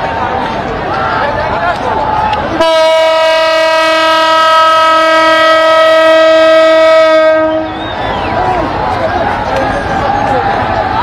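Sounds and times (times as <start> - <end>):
locomotive horn blast: 2.6 - 8.0.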